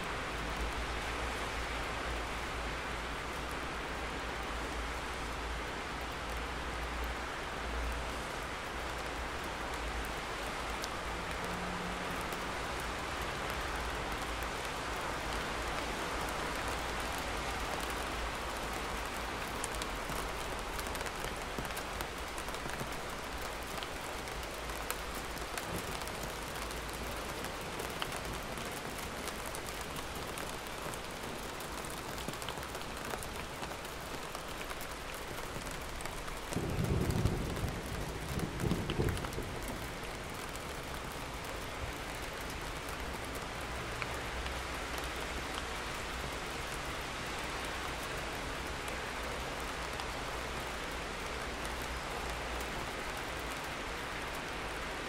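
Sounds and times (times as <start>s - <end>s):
steady rain falling: 0.0s - 55.0s
thunder rumbling: 36.6s - 40.2s.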